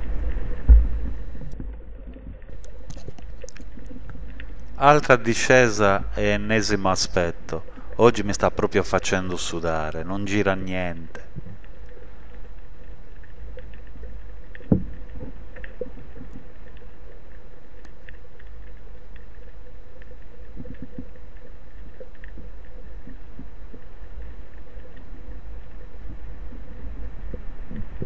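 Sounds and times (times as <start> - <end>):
small clicks and crackles: 0.0 - 5.2, 11.0 - 28.0
underwater low rumble: 0.0 - 10.0, 10.7 - 28.0
faint hum: 0.0 - 28.0.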